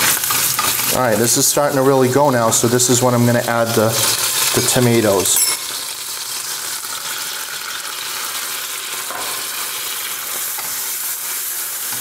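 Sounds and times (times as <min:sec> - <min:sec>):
wooden spoon stirring in pan: 0:00.0 - 0:04.8, 0:09.0 - 0:12.0
food sizzling in oil: 0:00.0 - 0:12.0.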